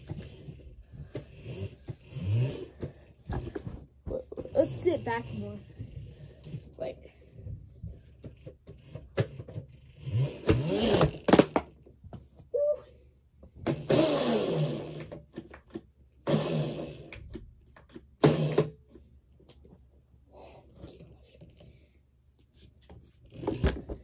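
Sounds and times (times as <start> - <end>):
bike scraping bursts: 0.0 - 3.8, 4.4 - 6.5.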